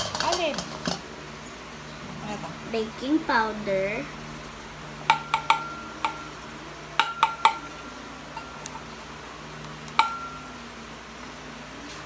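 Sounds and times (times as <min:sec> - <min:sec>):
spoon tapping metal bowl ringing: 0:05.1 - 0:06.4, 0:07.0 - 0:08.7, 0:10.0 - 0:10.6.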